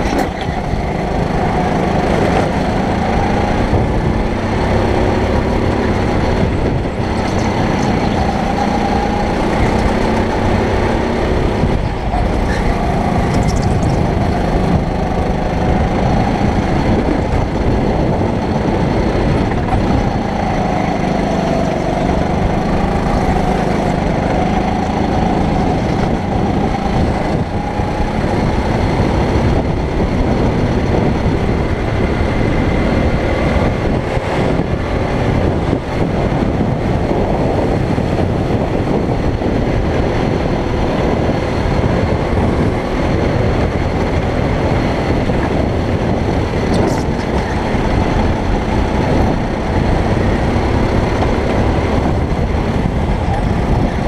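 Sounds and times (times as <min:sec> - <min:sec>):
kart engine racing: 0:00.0 - 0:54.0.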